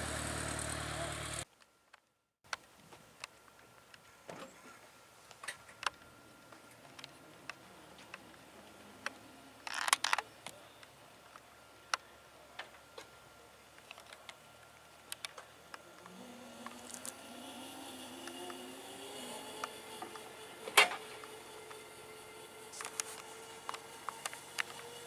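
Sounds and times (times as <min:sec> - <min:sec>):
helicopter turbine engine spooling up: 0:16.0 - 0:25.0.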